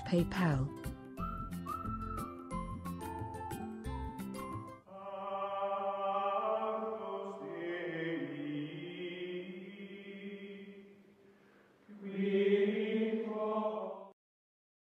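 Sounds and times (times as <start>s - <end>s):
choir-like chanting voices: 4.9s - 11.0s, 11.9s - 14.2s.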